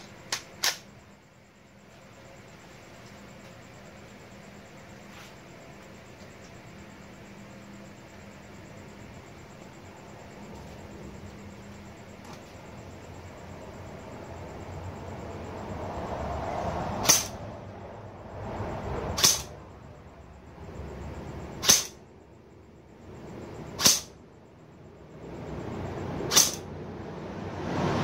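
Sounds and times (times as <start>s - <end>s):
airsoft rifle shots: 17.0s - 17.4s, 19.2s - 19.5s, 21.6s - 22.0s, 23.8s - 24.2s, 26.3s - 26.7s.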